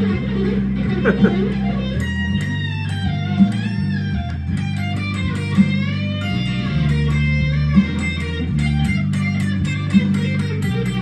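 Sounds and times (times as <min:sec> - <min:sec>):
electric guitar blues lead: 0:00.0 - 0:11.0
low bass notes: 0:00.0 - 0:11.0.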